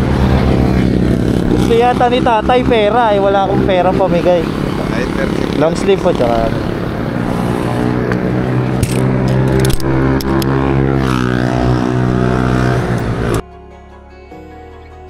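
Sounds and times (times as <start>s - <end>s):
vehicle engine running: 0.0s - 13.4s
sharp clicks and knocks: 8.1s - 10.5s.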